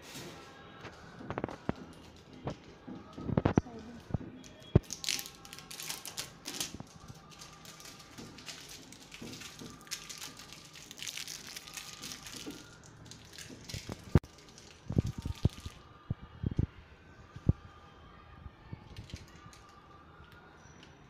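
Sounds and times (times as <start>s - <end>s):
plastic wrap crinkling: 0.0s - 15.8s.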